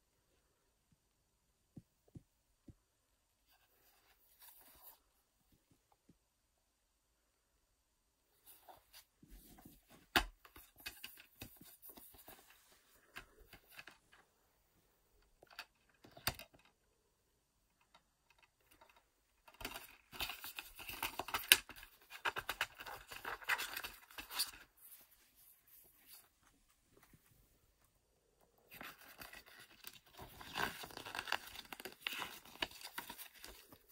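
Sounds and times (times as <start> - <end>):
paper and plastic crinkling: 28.7 - 33.9.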